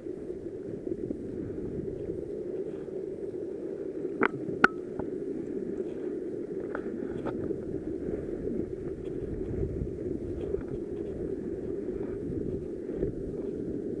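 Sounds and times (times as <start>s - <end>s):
wind rumble on microphone: 0.0s - 14.0s
faint ticks: 0.6s - 7.8s.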